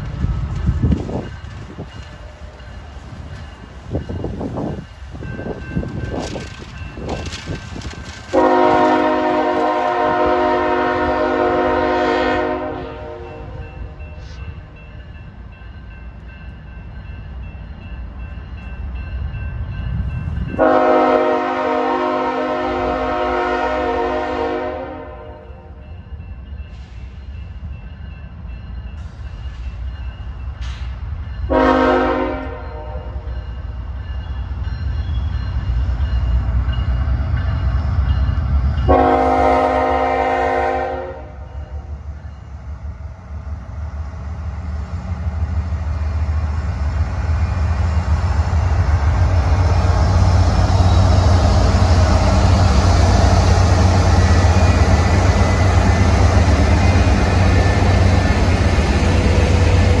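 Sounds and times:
diesel locomotive engines: 0.0s - 60.0s
train wheels on rails: 0.0s - 60.0s
locomotive horn blasts: 8.3s - 13.6s, 20.6s - 25.7s, 31.5s - 33.3s, 38.9s - 41.5s.

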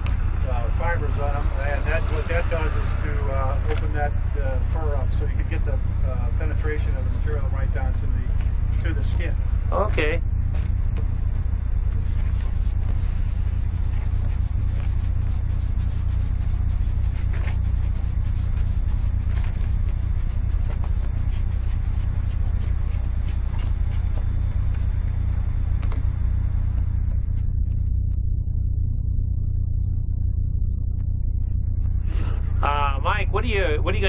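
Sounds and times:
steady low hum: 0.0s - 34.0s
hands rubbing fur: 10.5s - 28.2s.

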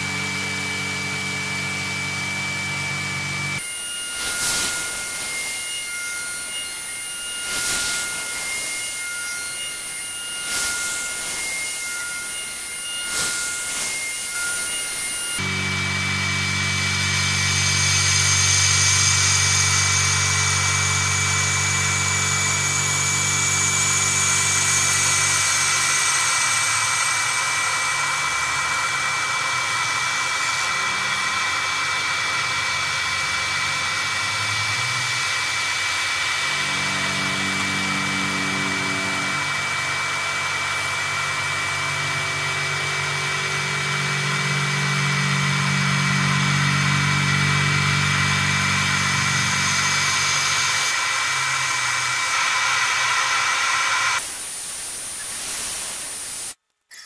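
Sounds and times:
milling machine cutting metal: 0.0s - 54.4s.

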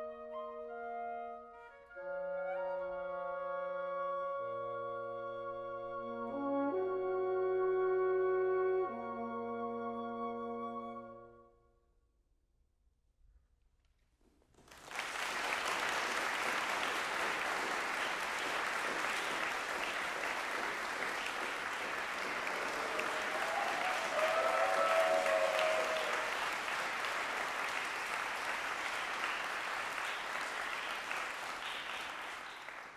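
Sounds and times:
audience applauding: 14.6s - 32.9s
audience cheering: 14.8s - 32.9s.

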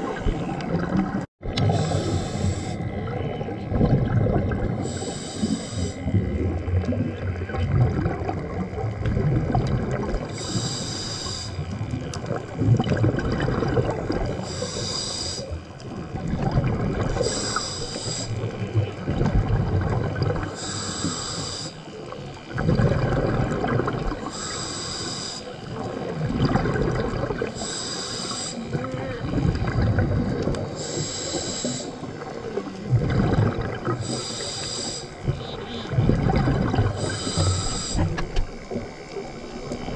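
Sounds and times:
bubbling exhales: 0.0s - 39.9s
hissing regulator inhale: 1.6s - 3.0s, 4.8s - 6.5s, 10.2s - 11.8s, 14.3s - 15.8s, 17.1s - 18.6s, 20.4s - 22.4s, 24.1s - 26.2s, 27.4s - 29.6s, 30.4s - 33.0s, 33.8s - 36.0s, 36.9s - 39.9s.

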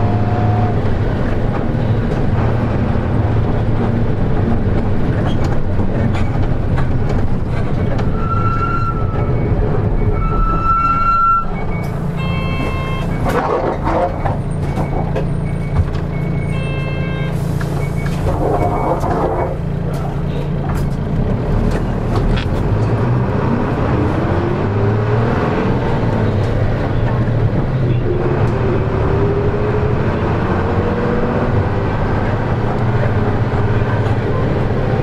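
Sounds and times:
bus diesel engine humming: 0.0s - 35.0s
electronic beeping tones: 11.2s - 13.3s.

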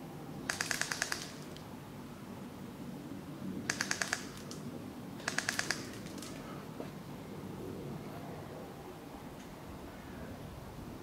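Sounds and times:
airsoft rifle automatic fire: 0.5s - 1.6s, 3.7s - 4.6s, 5.2s - 6.3s.

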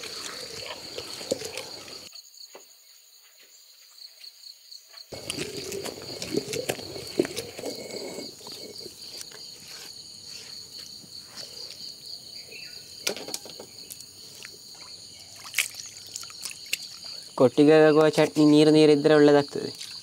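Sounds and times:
insects chirring: 0.0s - 20.0s
stone mortar scraping: 5.2s - 9.9s.

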